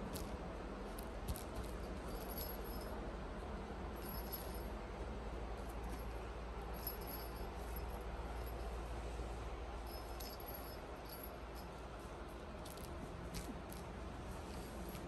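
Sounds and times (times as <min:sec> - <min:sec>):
steady low hum: 0:00.0 - 0:15.0
toy bell tinkling: 0:01.6 - 0:03.0, 0:04.0 - 0:04.8, 0:05.8 - 0:08.8, 0:09.8 - 0:11.8.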